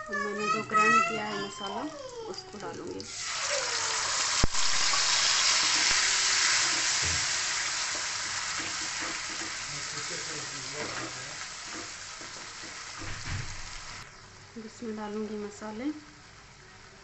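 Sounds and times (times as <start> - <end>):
paste sizzling in hot oil: 2.9 - 14.0
wooden spatula stirring: 6.7 - 12.8.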